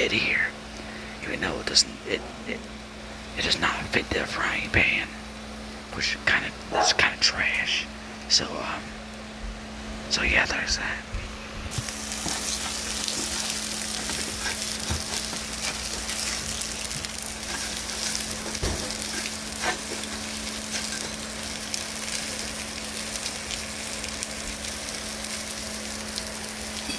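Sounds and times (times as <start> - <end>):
sausages sizzling in a frying pan: 11.7 - 26.9.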